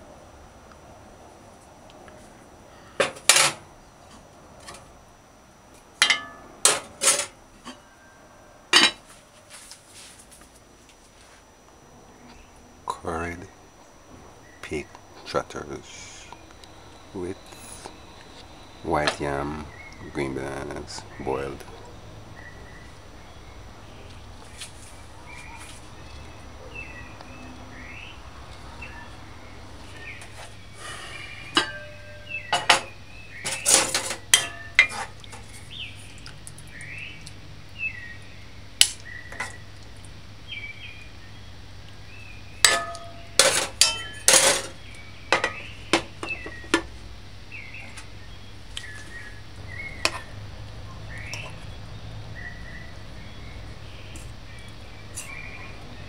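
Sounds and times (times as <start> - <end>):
cutlery clinking on pot and plate: 6.0 - 7.8, 8.8 - 9.0, 31.6 - 35.1, 42.6 - 44.8.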